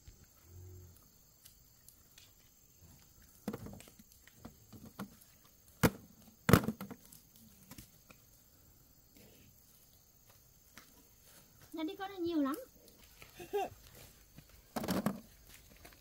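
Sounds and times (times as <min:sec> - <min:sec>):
knocks and clatter of hard objects: 0:03.4 - 0:05.2, 0:05.8 - 0:07.0, 0:14.7 - 0:15.3.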